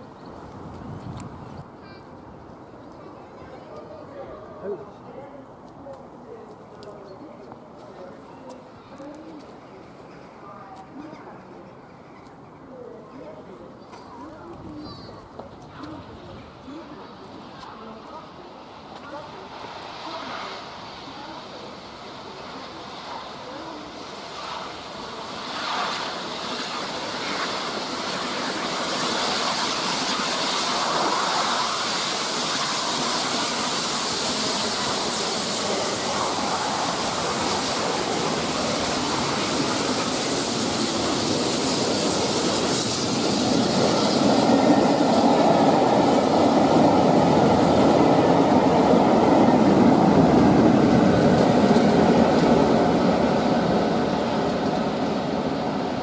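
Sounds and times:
wheels rumbling on rail: 5.7s - 56.0s
electric train pulling in: 15.3s - 56.0s.

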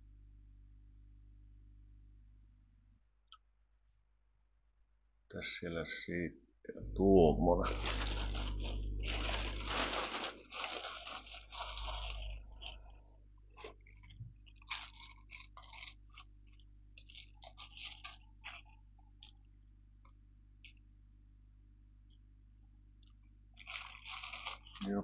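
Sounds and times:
plastic packaging crinkling: 7.6s - 19.5s, 23.0s - 25.0s.

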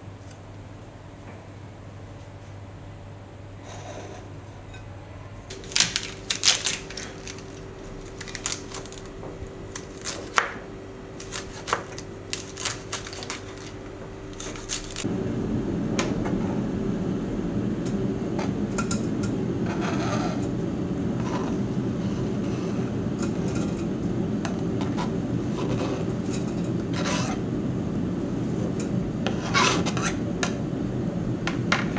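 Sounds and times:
knife chopping cabbage on board: 11.2s - 13.7s
low rumbling noise: 13.2s - 31.9s.

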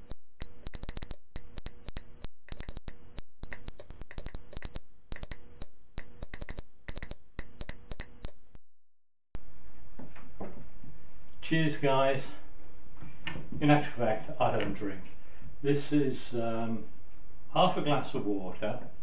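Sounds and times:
high-pitched electronic beeps: 0.0s - 8.4s.

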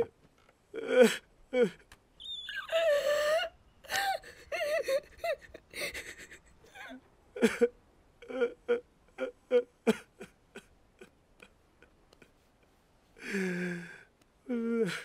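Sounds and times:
person moaning: 13.2s - 15.0s.

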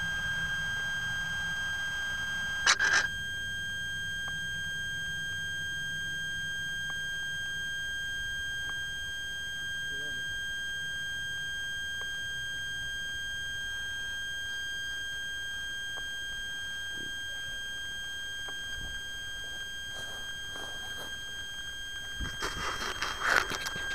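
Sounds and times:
high-pitched electronic whine: 0.0s - 23.9s
rustling footsteps in grass: 19.9s - 21.2s.

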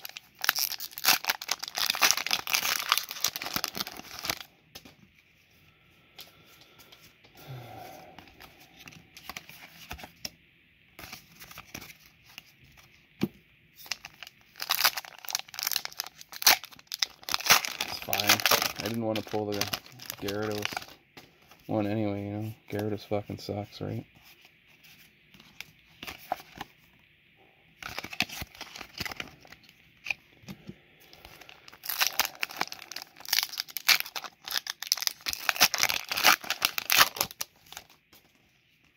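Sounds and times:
foil wrapper tearing and crinkling: 0.0s - 4.5s, 13.8s - 21.0s, 31.3s - 38.0s.

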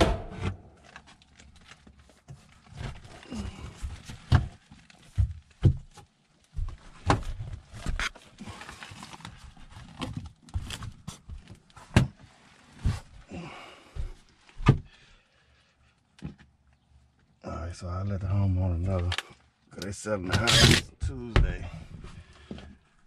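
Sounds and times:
knocks and thumps: 0.0s - 0.7s
person moving about handling things: 0.0s - 15.1s, 21.0s - 23.0s.

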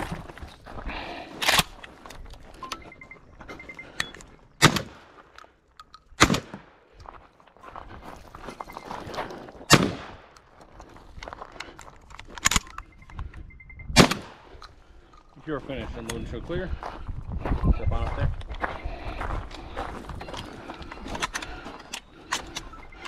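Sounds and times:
gunshots with echo: 9.7s - 10.2s, 14.0s - 14.5s.

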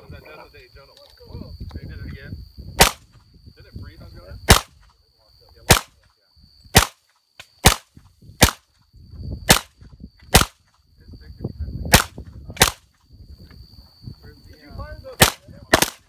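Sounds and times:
submachine gun single shots: 2.8s - 3.1s, 4.5s - 4.8s, 5.7s - 6.0s, 6.8s - 8.6s, 9.5s - 10.6s, 11.9s - 12.9s, 15.2s - 16.0s.

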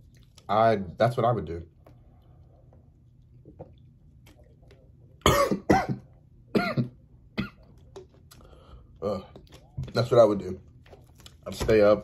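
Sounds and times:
man coughing: 5.2s - 7.7s.

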